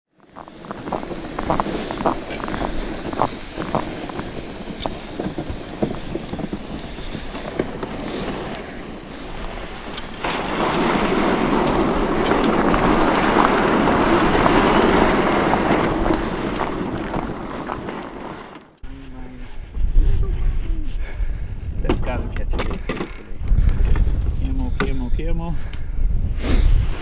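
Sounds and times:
sled runners scraping on ice: 0.1s - 20.8s
footsteps crunching in snow: 0.1s - 21.0s
sled hissing over snow: 0.2s - 18.6s.

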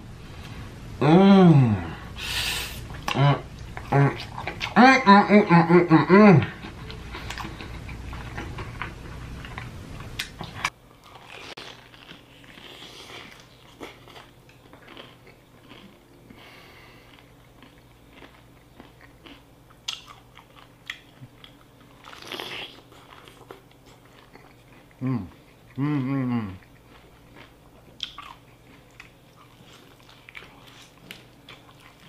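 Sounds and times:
low background hum: 0.0s - 32.0s
wet chewing and smacking: 6.6s - 16.1s, 17.0s - 25.8s, 26.6s - 32.0s
crunching fried chicken: 10.2s - 16.0s.

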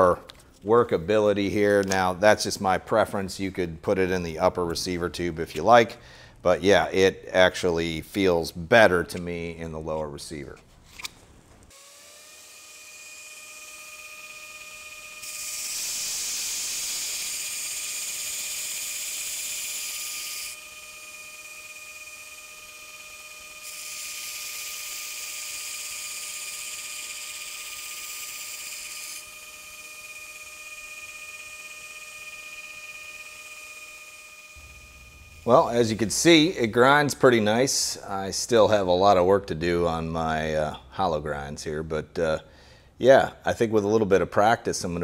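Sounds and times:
belt grinder whine: 11.7s - 38.2s
knife blade grinding hiss: 15.2s - 20.6s.

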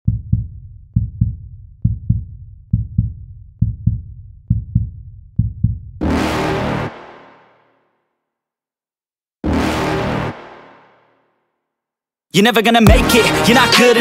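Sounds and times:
heartbeat double thump: 0.1s - 6.0s.

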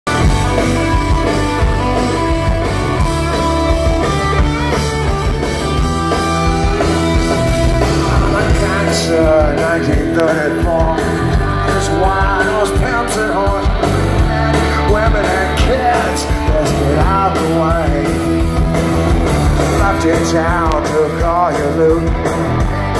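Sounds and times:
punk rock band playing live: 0.0s - 22.9s.

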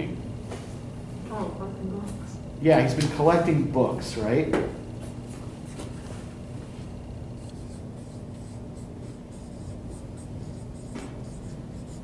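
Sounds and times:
marker squeaking on whiteboard: 7.4s - 12.0s.

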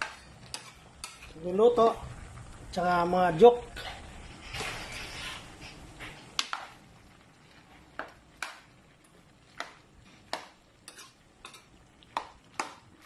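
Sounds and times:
spoon scraping pan: 0.0s - 1.4s, 3.8s - 6.8s, 9.6s - 12.7s.

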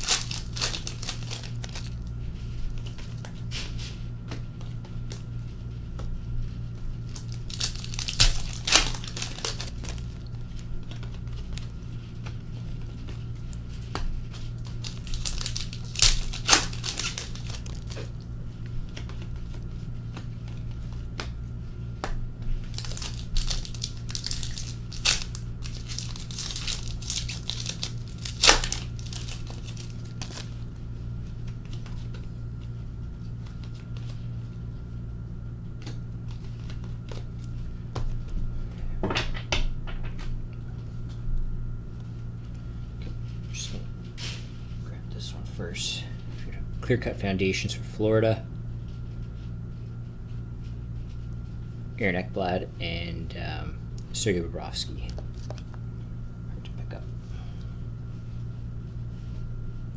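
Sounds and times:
card pack wrappers tearing: 0.0s - 2.1s, 7.1s - 11.8s, 14.5s - 18.2s, 22.7s - 30.5s
cards being handled: 0.0s - 6.2s, 7.0s - 30.6s, 35.7s - 38.4s, 55.0s - 55.8s
steady low hum: 0.0s - 59.9s.

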